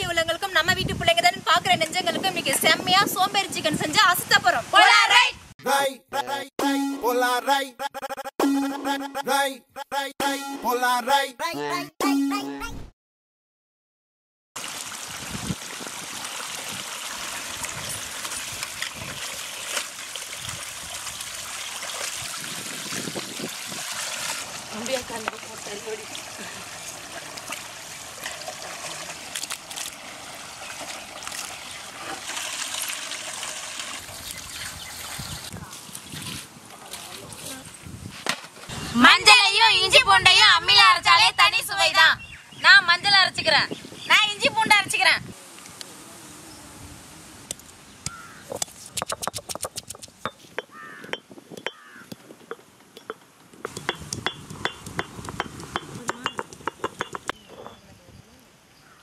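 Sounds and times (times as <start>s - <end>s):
stone roller grinding on stone slab: 52.4s - 57.8s.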